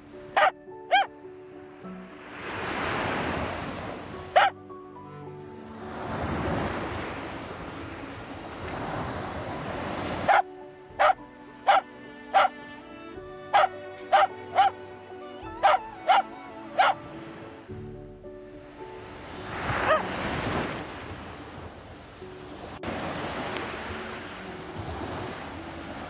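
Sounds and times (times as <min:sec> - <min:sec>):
dog barking: 0:00.4 - 0:01.1, 0:04.4 - 0:04.6, 0:10.2 - 0:12.5, 0:13.5 - 0:14.8, 0:15.6 - 0:17.0, 0:19.8 - 0:20.1
waves washing on beach: 0:01.8 - 0:04.6, 0:05.4 - 0:12.5, 0:18.7 - 0:26.0.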